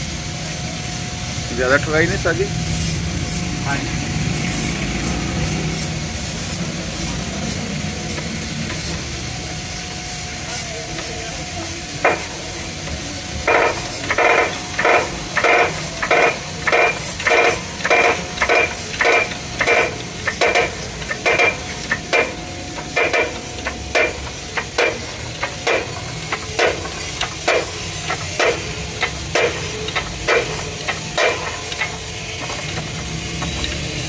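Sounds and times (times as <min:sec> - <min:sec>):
hydraulic jack creaking: 0:13.4 - 0:34.0.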